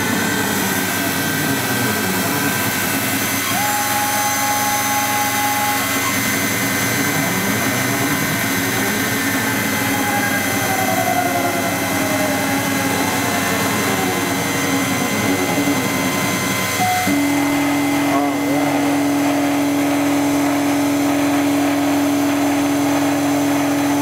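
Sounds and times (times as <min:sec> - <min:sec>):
end mill chipping wax: 0:00.0 - 0:24.0
milling machine spindle motor: 0:00.0 - 0:24.0.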